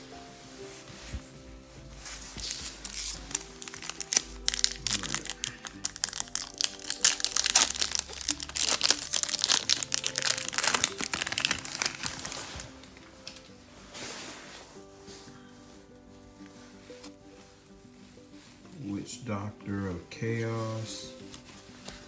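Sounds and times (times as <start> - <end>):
background music: 0.0 - 22.0
foil wrapper crinkling and tearing: 2.4 - 13.4.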